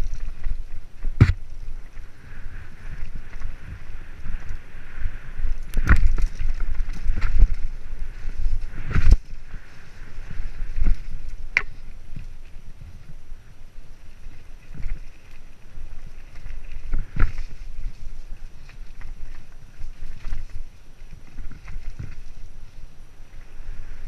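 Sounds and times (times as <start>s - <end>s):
mountain bike rattling on trail: 0.0s - 24.0s
wind buffeting microphone: 0.0s - 24.0s
bike knocking on bumps: 0.2s - 2.0s.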